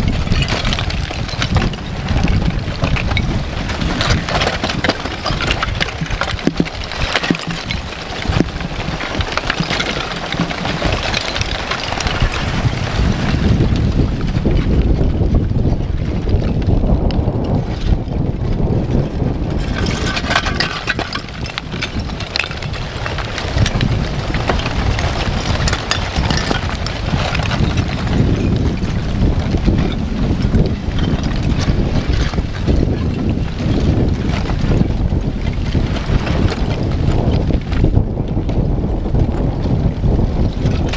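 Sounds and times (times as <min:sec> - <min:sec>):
lava chunks crackling and clinking: 0:00.0 - 0:40.9
wind on microphone: 0:00.0 - 0:40.9.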